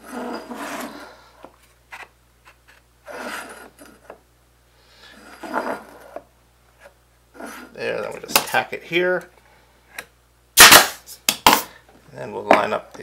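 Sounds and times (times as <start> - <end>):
wood scraping on workbench: 0.0 - 1.2, 3.1 - 4.2, 5.2 - 6.2.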